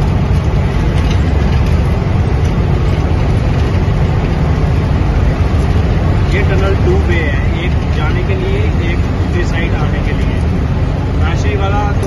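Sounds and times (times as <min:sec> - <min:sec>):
truck engine and tyres rumbling: 0:00.0 - 0:12.0.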